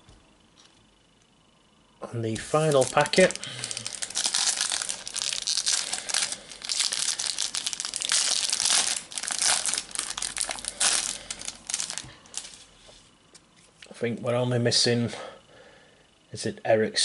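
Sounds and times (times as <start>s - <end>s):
foil wrapper crackling: 2.3s - 12.6s.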